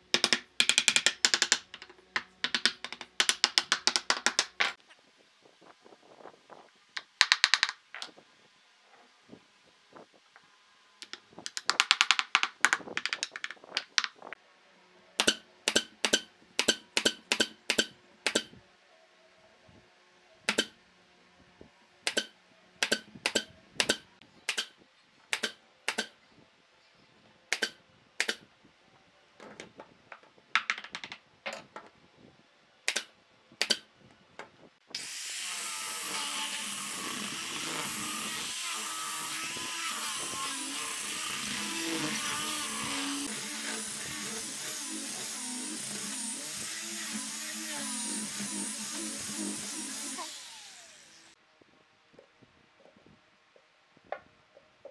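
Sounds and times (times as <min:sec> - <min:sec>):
angle grinder sanding wood: 0:35.0 - 0:51.4.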